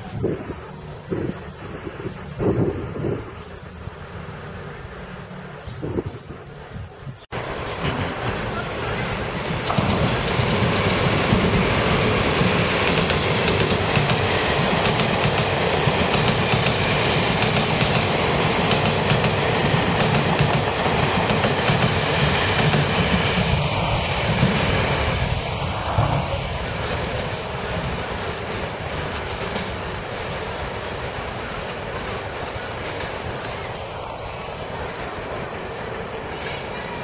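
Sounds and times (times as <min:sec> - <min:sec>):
train wheels rumbling: 0:00.0 - 0:37.0
wheels clacking over rail joints: 0:07.4 - 0:25.3, 0:26.8 - 0:37.0.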